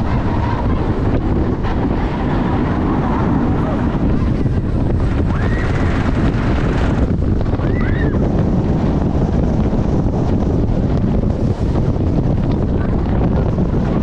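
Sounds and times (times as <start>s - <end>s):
roller coaster rumble: 0.0s - 14.0s
wind buffeting microphone: 0.0s - 14.0s
high whoop: 5.3s - 5.8s, 7.6s - 8.3s.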